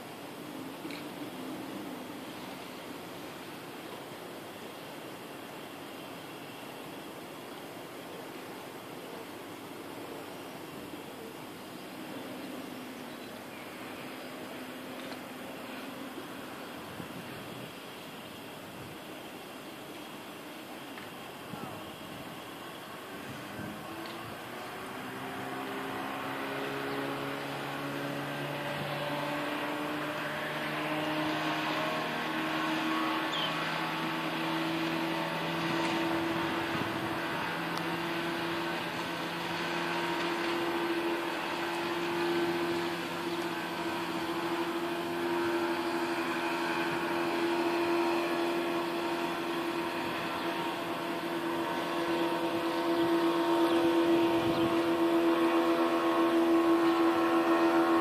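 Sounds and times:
ship machinery droning: 21.2s - 58.0s.

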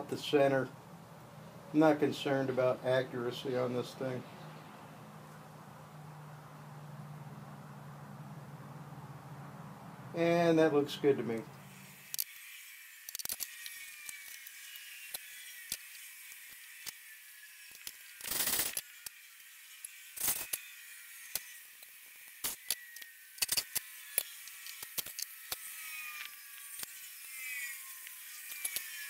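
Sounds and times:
electric drill drilling metal: 11.7s - 29.0s.

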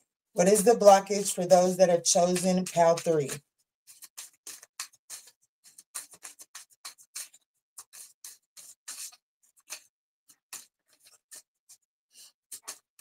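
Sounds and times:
cards being shuffled: 0.4s - 9.9s.

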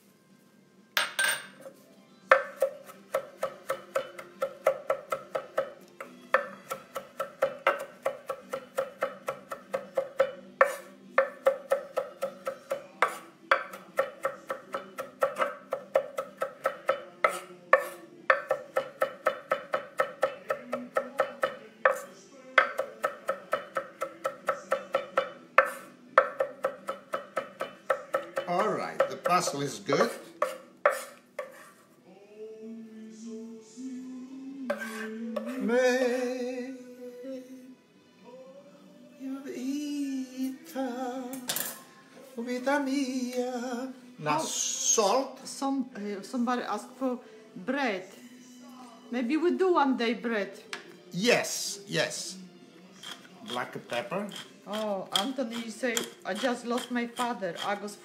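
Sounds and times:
knife chopping on wooden board: 2.3s - 31.7s, 34.7s - 35.5s.

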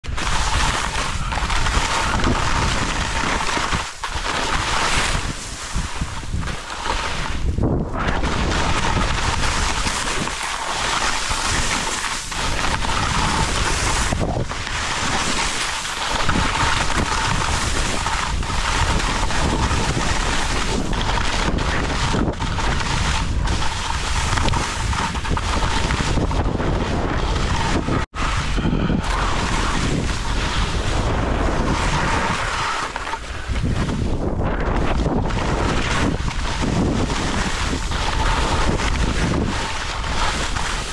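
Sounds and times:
skis scraping over snow: 0.0s - 40.9s
wind rushing over microphone: 0.0s - 40.9s.

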